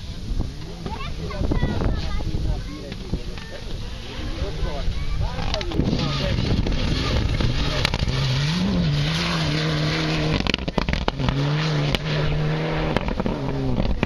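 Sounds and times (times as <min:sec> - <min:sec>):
gravel and tyre noise: 0:00.0 - 0:14.0
rally car engine revving: 0:03.7 - 0:14.0.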